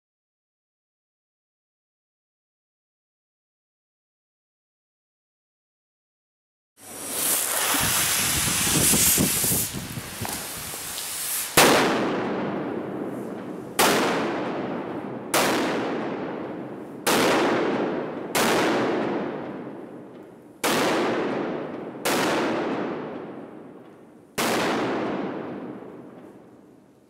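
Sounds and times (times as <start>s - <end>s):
firework bangs with echo: 6.8s - 26.8s.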